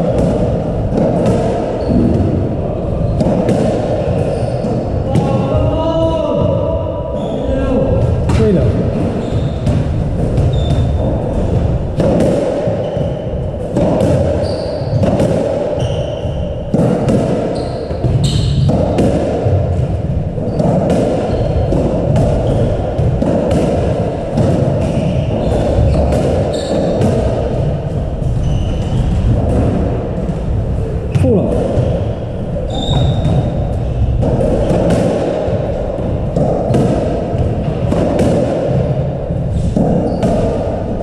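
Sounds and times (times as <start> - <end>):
shoes squeaking on wooden floor: 1.8 - 2.2, 4.2 - 4.8, 7.2 - 11.6, 12.6 - 16.6, 17.5 - 18.9, 20.4 - 22.9, 24.8 - 29.5, 31.2 - 34.9, 39.5 - 40.6
squash ball cracking off rackets: 8.2 - 30.5, 31.1 - 41.0.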